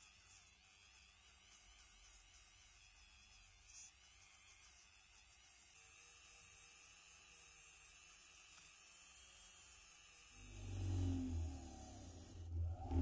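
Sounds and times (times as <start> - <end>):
rotary tool humming: 8.6 - 13.0.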